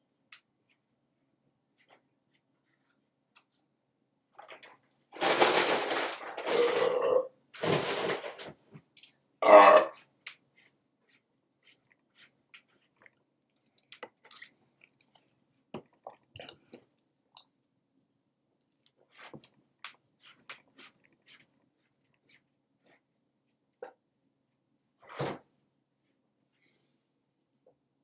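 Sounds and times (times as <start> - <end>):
person chewing and handling food: 0.0 - 24.1.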